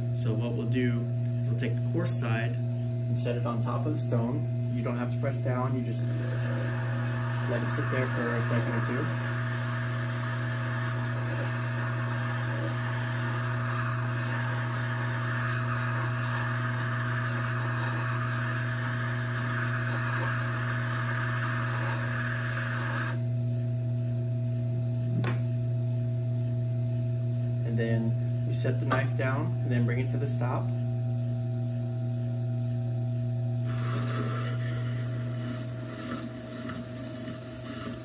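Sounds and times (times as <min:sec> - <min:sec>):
grinder motor humming: 0:05.4 - 0:23.6, 0:33.5 - 0:38.0
gritty grinding hiss: 0:06.0 - 0:23.2.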